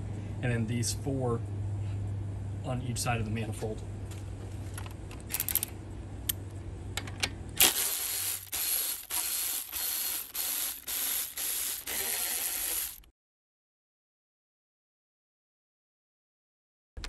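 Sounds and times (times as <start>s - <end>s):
steady low hum: 0.0s - 13.0s
electric ratchet bursts: 7.6s - 13.1s.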